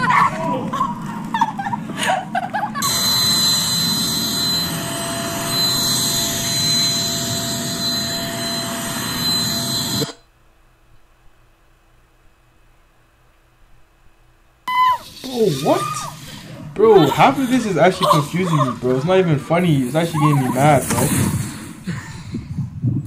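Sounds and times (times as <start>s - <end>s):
vacuum cleaner motor whining: 2.8s - 10.2s, 14.7s - 21.4s.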